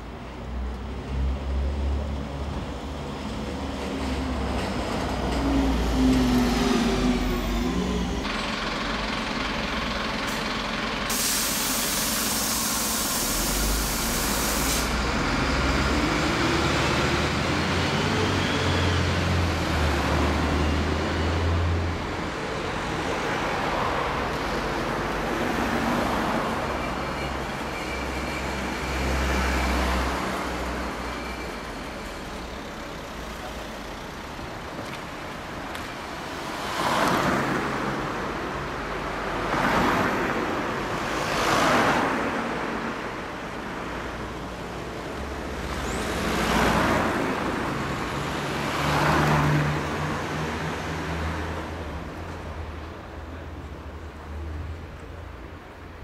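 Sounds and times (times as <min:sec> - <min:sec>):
high hiss: 0:11.1 - 0:15.0
cars driving past: 0:13.4 - 0:55.2.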